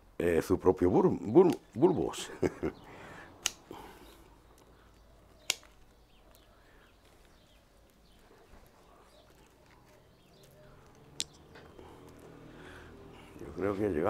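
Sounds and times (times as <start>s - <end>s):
pruning shears snipping roots: 3.3s - 3.8s, 4.4s - 6.4s.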